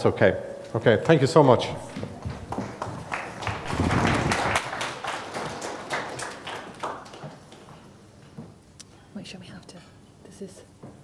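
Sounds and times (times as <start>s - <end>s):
audience applauding: 2.2s - 7.7s.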